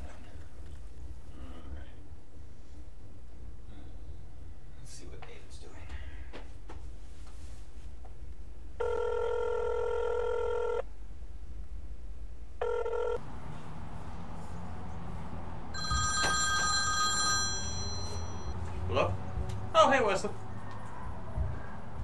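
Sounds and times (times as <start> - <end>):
phone ringtone: 8.8 - 10.8, 12.6 - 13.2, 15.8 - 18.5
telephone ringback tone: 8.8 - 10.8, 12.6 - 13.2, 15.8 - 18.5.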